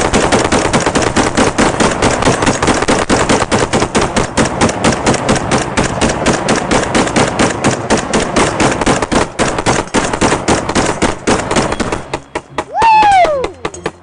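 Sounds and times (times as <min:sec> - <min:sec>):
rapid rifle fire: 0:00.0 - 0:14.0.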